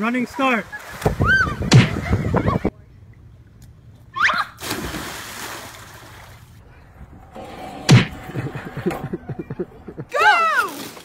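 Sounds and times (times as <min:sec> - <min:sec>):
person splashing into pool: 0:04.6 - 0:06.4.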